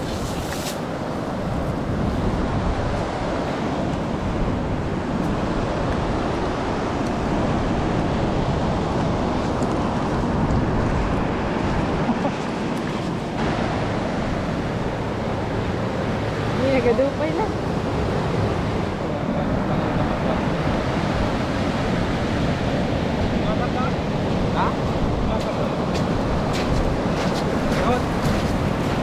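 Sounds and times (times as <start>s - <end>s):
surf washing over pebbles: 0.0s - 3.7s, 23.4s - 29.0s.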